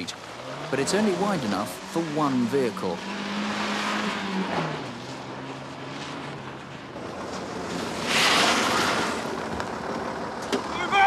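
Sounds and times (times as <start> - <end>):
tyre and road noise: 0.0 - 11.0.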